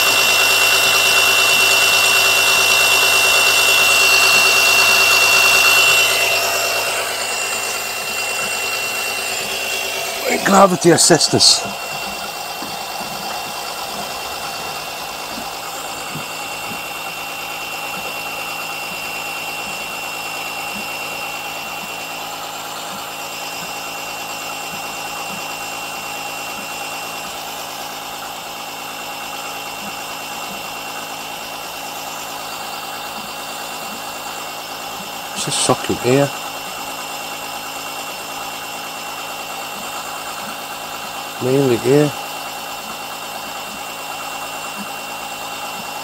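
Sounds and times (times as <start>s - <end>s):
electric pump whining: 0.0s - 46.0s.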